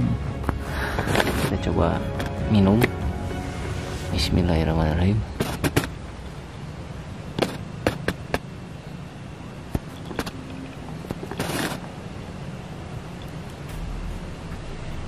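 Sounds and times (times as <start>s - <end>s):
breathy hiss: 0.6s - 1.5s, 3.1s - 4.5s
low background rumble: 12.0s - 15.0s.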